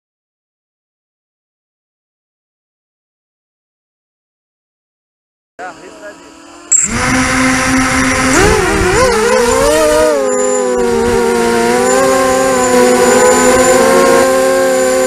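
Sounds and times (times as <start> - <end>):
drone propellers whining: 5.6 - 15.0.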